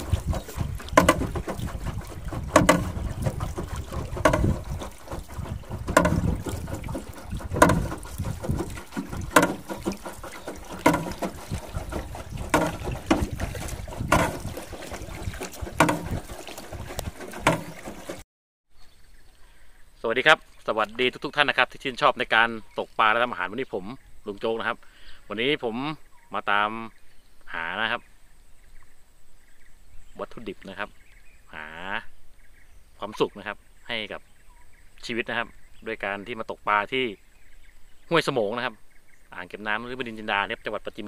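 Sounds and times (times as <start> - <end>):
paddles splashing in water: 0.0 - 18.2
wind on microphone: 0.0 - 18.2.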